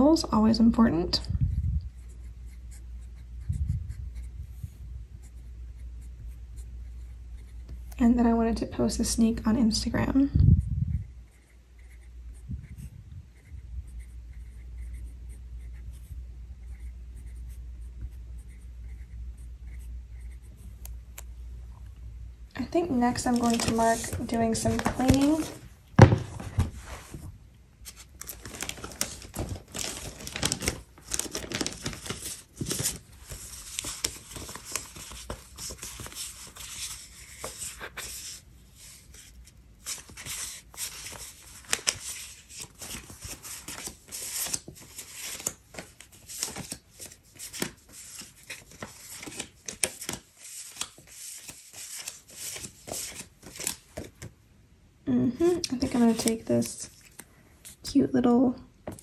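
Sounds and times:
paper sticker sheets rustling: 22.6s - 54.3s, 55.7s - 57.8s.

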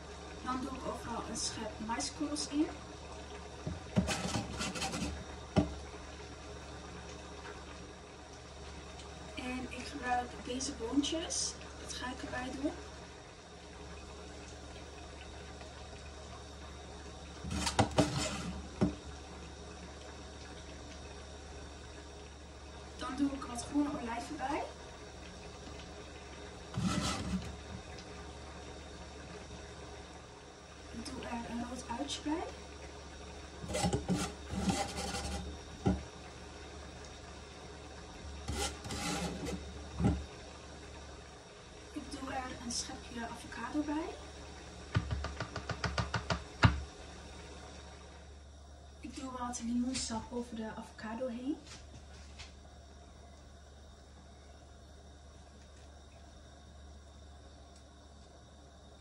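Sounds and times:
metal spoon scraping mesh strainer: 4.0s - 5.2s, 26.8s - 27.5s, 33.6s - 35.5s, 38.5s - 39.6s.

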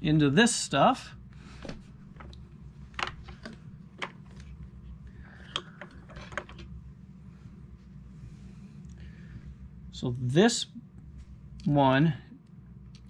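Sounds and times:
vacuum parts clicking and knocking: 2.2s - 4.3s, 5.5s - 6.7s.

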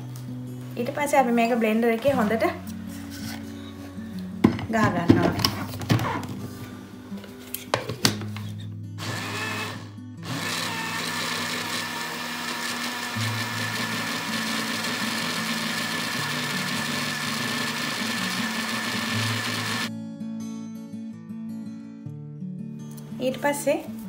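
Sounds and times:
blender whirring: 9.0s - 19.9s.

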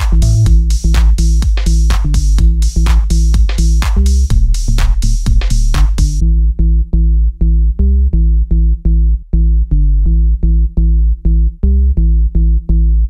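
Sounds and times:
electronic music with drum machine: 0.0s - 13.0s.

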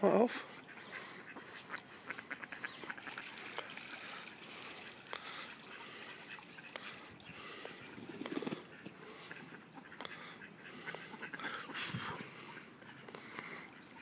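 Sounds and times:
ducks splashing on water: 0.5s - 14.0s
trickling water: 0.7s - 14.0s
duck flapping wings on water: 1.6s - 9.4s.

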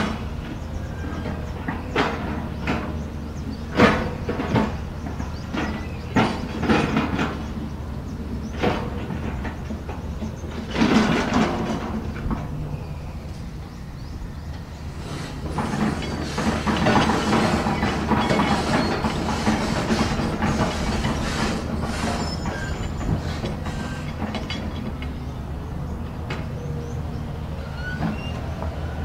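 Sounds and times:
excavator diesel engine under load: 0.0s - 29.0s
short squeals: 15.0s - 24.2s, 27.6s - 29.0s
metal clanks: 15.1s - 25.2s.

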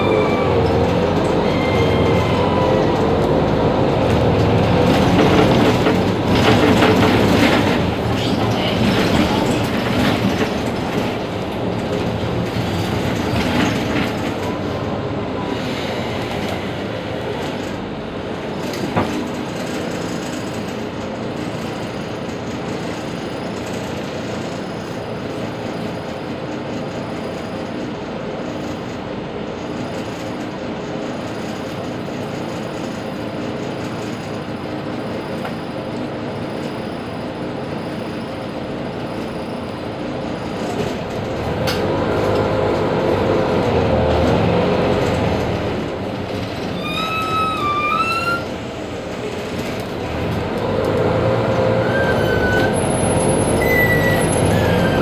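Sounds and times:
bus engine idling: 32.0s - 55.0s.

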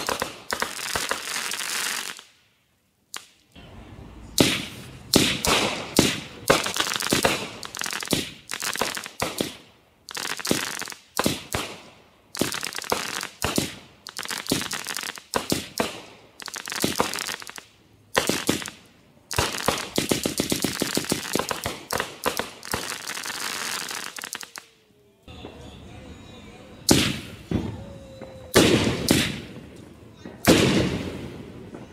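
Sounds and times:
firework pops and crackling bursts: 0.0s - 2.5s, 3.1s - 3.6s, 4.4s - 24.8s, 26.9s - 31.9s.

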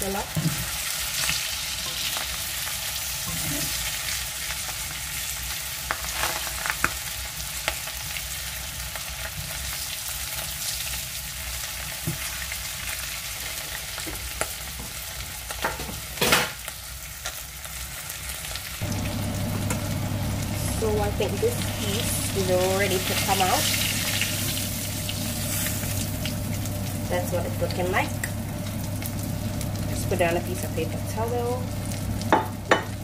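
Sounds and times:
fish sizzling in hot oil: 0.0s - 33.0s
low steady hum: 18.8s - 33.0s
spatula knocking on pan: 32.3s - 33.0s.

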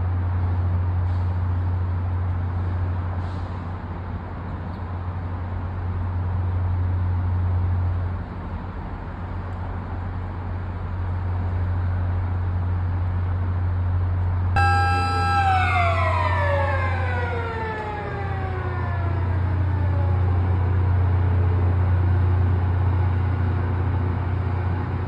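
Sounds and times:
city traffic hum: 0.0s - 25.0s
multi-tone siren: 14.6s - 21.8s
low drone: 14.6s - 22.3s.

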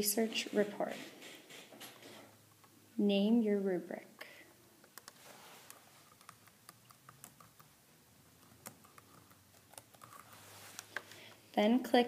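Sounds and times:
laptop keyboard clicks: 6.1s - 7.7s.

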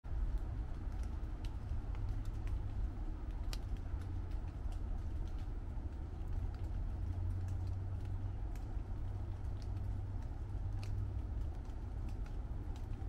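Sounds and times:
light rain on leaves: 0.0s - 13.0s
steady low rumble: 0.0s - 13.0s.

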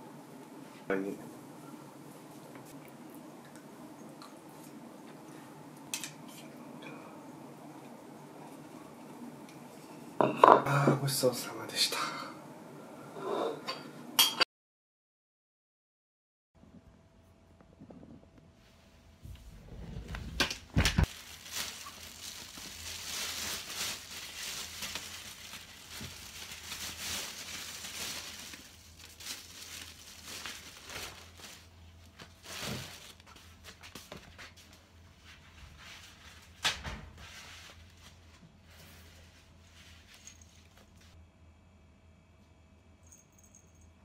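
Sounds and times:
rustling and crinkling: 18.6s - 41.2s.

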